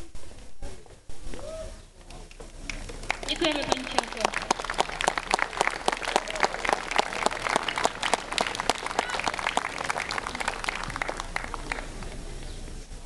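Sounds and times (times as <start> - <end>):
crowd applauding: 2.6 - 12.4.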